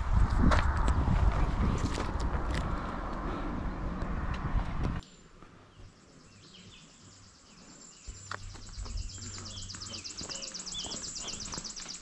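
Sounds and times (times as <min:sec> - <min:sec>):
insects trilling: 0:06.0 - 0:12.0.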